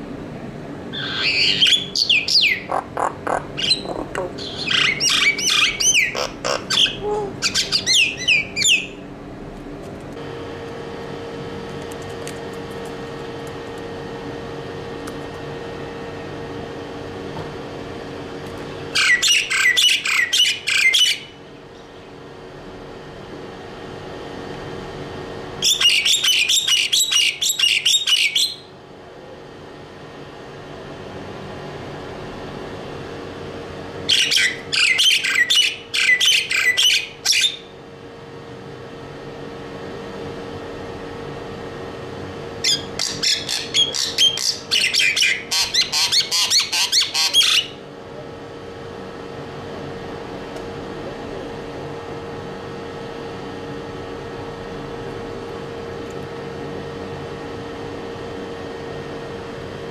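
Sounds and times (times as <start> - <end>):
steady low hum: 0.0 - 59.9
bird chattering and squawking: 0.9 - 9.0, 18.9 - 21.4, 25.6 - 28.7, 34.1 - 37.7, 42.6 - 47.8.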